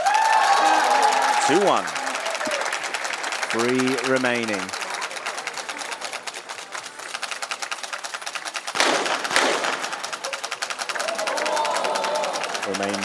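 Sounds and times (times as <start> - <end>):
pistol shots with echo: 8.8 - 9.9.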